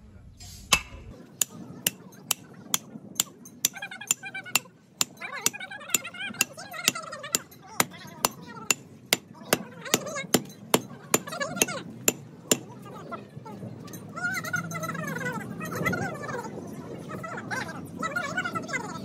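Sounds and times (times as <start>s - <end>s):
sledgehammer striking steel bar: 0.7s - 12.7s.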